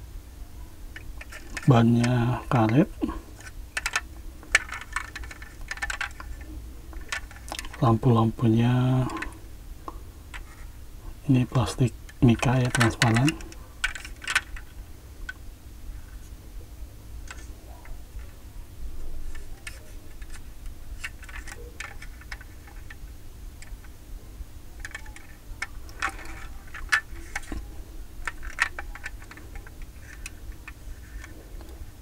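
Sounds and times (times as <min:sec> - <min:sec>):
low steady hum: 0:00.0 - 0:32.0
fingers clicking on model car: 0:03.8 - 0:07.8, 0:24.8 - 0:27.6, 0:28.2 - 0:31.3.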